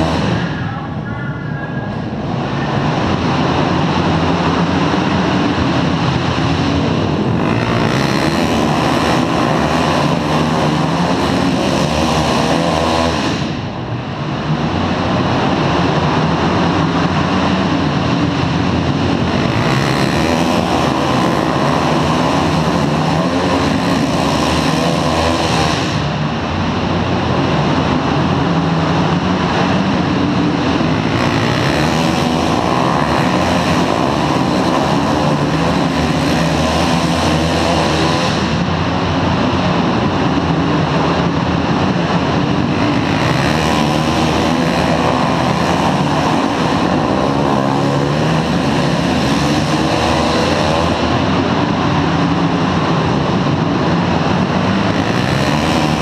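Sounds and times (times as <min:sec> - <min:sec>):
motorcycles racing: 0:00.0 - 0:56.0.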